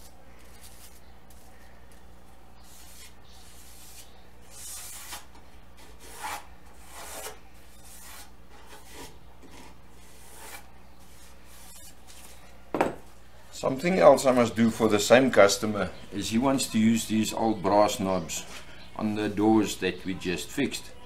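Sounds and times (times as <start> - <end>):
low steady hum: 0.0 - 21.0
hand plane scraping wood: 2.6 - 12.0.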